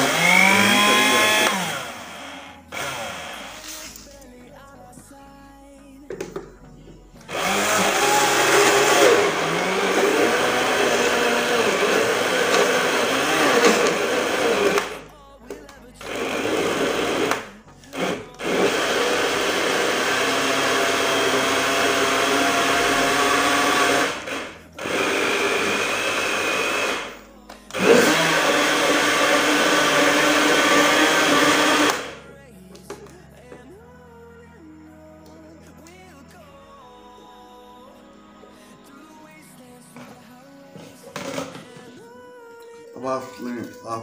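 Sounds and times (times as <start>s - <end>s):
electric blender grinding: 0.0s - 3.9s, 7.2s - 15.0s, 16.0s - 32.2s.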